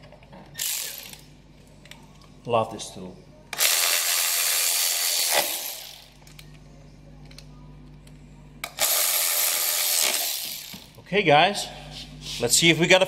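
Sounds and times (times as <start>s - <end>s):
electric ratchet running: 0.6s - 1.2s, 3.6s - 6.2s, 8.6s - 11.0s.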